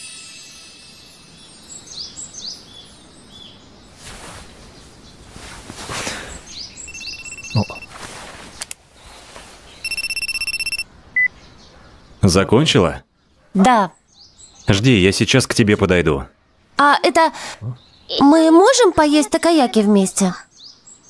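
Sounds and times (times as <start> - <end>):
birds chirping: 0.0 - 21.0
pulsing electronic ringing tone: 6.9 - 7.9, 9.8 - 11.3.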